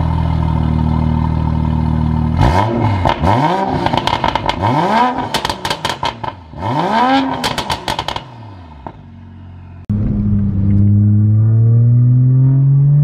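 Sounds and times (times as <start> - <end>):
car engine revving: 2.0 - 13.0
exhaust crackles and pops: 3.8 - 4.6, 5.2 - 6.4.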